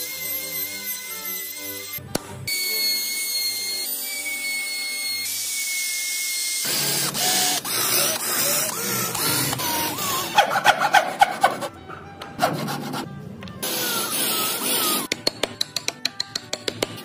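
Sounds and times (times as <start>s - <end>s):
trim router whine: 0.0s - 10.4s
electric drill boring into wood: 0.0s - 10.6s, 13.6s - 15.1s.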